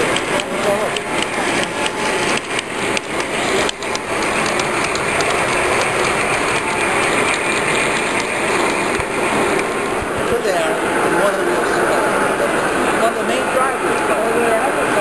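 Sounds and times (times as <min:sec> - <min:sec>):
model train wheels rattling: 0:00.0 - 0:10.4
sharp clicks: 0:00.1 - 0:09.7.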